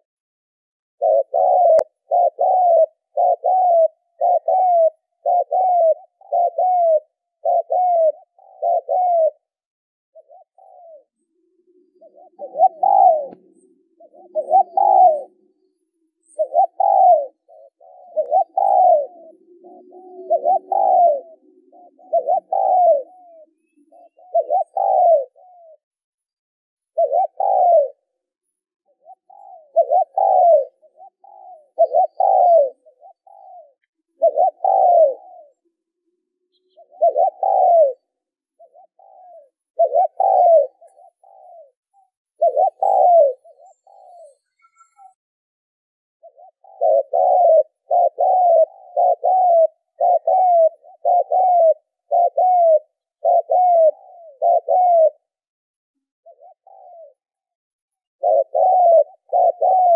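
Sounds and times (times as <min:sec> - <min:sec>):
dove cooing: 0:01.0 - 0:25.9, 0:26.9 - 0:45.2, 0:46.2 - 0:59.9.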